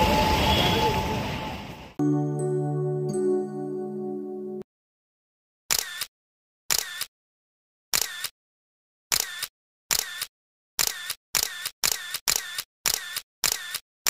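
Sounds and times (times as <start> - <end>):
sharp two-part click: 5.7 - 6.1, 6.7 - 7.1, 7.9 - 8.4, 9.1 - 13.8.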